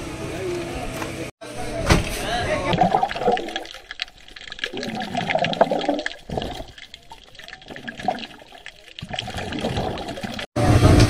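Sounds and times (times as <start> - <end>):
water rushing and gurgling: 2.6 - 10.5.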